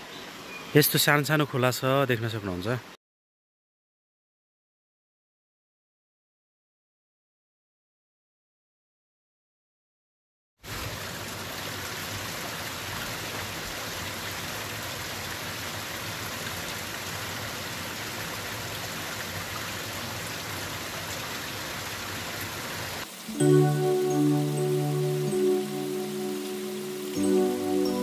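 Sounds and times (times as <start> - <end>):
small waterfall splashing: 10.6 - 28.0
music: 23.3 - 28.0.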